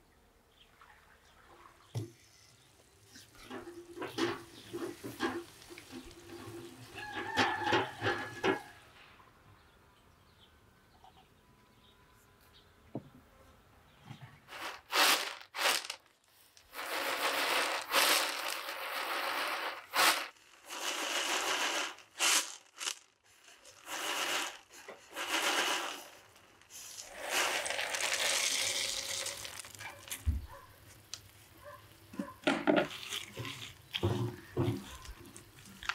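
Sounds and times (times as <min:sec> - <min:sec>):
peanuts rattling on a metal tray: 0:03.5 - 0:08.7, 0:14.5 - 0:30.2
peanuts tipped into a pot: 0:14.5 - 0:30.4.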